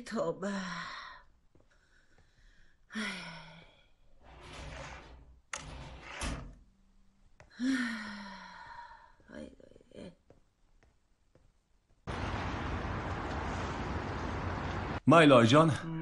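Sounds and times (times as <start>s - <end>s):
woman sighing: 7.5s - 10.1s.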